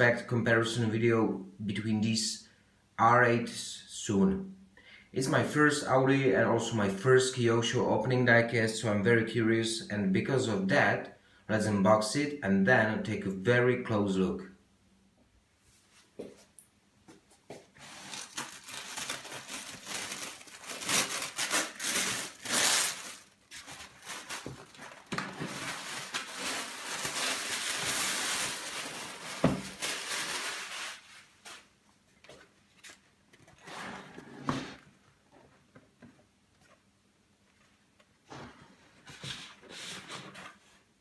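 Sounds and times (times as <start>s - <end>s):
paper tearing and rustling: 17.8s - 31.7s.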